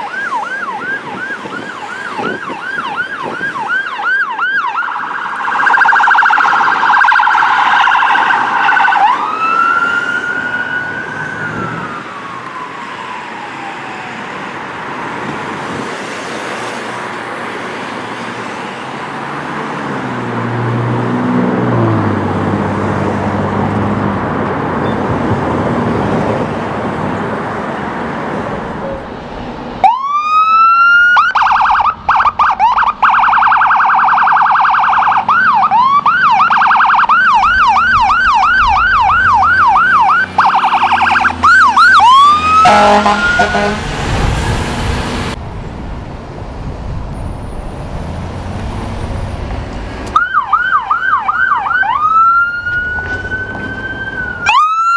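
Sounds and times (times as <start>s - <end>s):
ambulance siren yelping: 0.0s - 15.6s, 29.8s - 44.8s, 50.1s - 54.9s
fire engine siren: 0.0s - 45.6s, 50.0s - 54.9s
road traffic hum: 0.0s - 54.9s.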